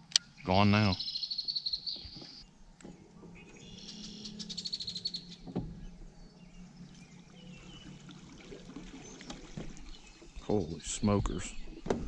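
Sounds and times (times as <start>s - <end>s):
electric boat motor humming: 2.5s - 10.4s
water washing past hull: 3.0s - 10.9s.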